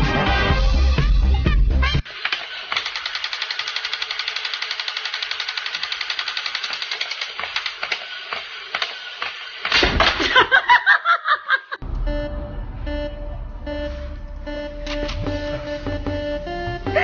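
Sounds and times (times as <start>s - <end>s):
toy rattling with rapid clicks: 2.1s - 8.1s
guitar music: 11.9s - 17.0s.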